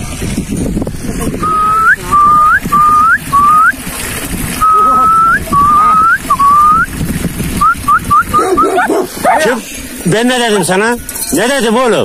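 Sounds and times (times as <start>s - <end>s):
person whistling: 1.4s - 3.7s, 4.6s - 6.9s, 7.6s - 8.8s.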